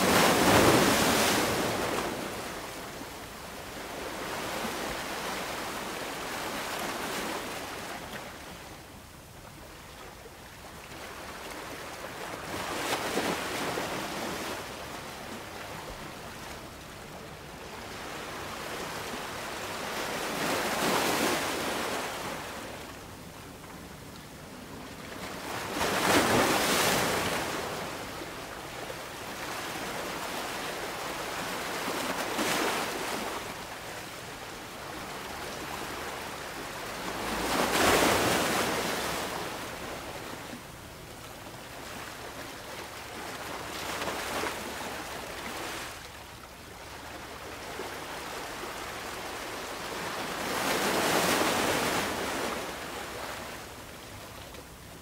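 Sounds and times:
ocean waves breaking: 0.0 - 2.8.

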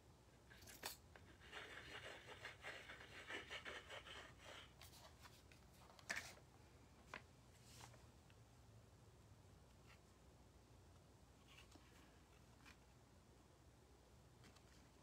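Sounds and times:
rustling and scraping of craft pieces: 0.5 - 8.1, 11.4 - 12.9.

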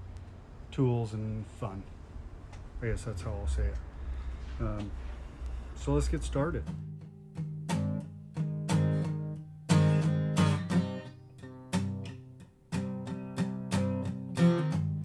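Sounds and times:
acoustic guitar strumming chords: 5.5 - 15.0.

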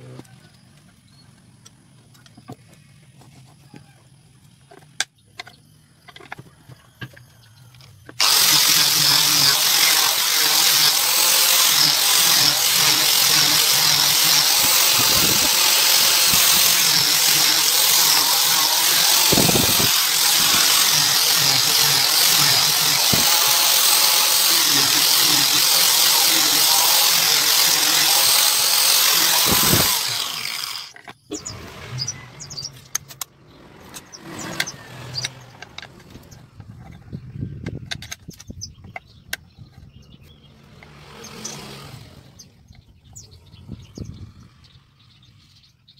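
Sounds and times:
angle grinder sanding wood: 8.2 - 33.0.

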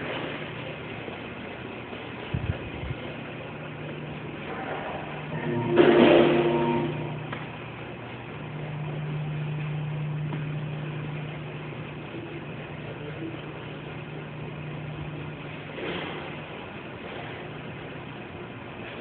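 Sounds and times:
short loud pitched sound: 4.5 - 7.2.

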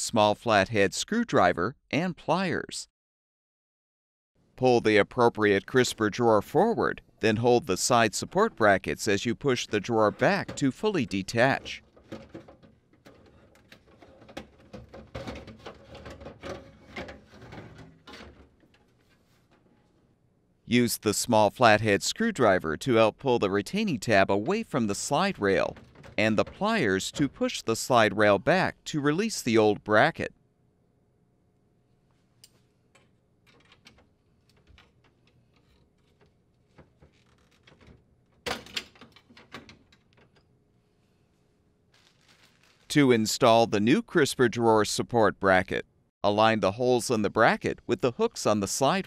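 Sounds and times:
plastic drawer clicks and scrapes: 10.1 - 19.0
plastic bracket clicking and rattling: 11.6 - 19.6, 25.7 - 26.6, 32.9 - 40.5.

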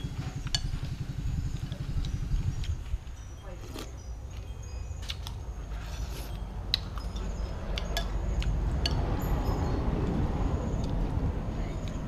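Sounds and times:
utensils clinking on bowl: 1.6 - 9.8.

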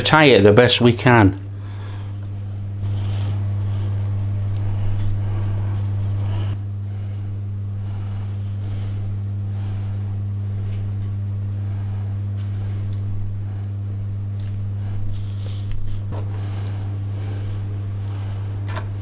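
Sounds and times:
low hum: 1.4 - 19.0
twine rustling: 1.6 - 13.6.

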